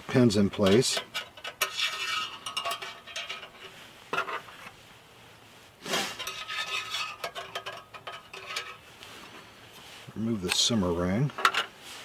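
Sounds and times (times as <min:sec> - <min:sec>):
metal pins scraping on metal: 0:00.1 - 0:04.7, 0:05.9 - 0:08.9.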